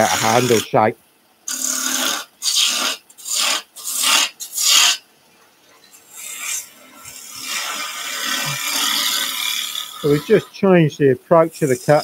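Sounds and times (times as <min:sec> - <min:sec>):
gouge cutting wood on a lathe: 0:00.0 - 0:00.6, 0:01.5 - 0:05.0, 0:06.2 - 0:10.6.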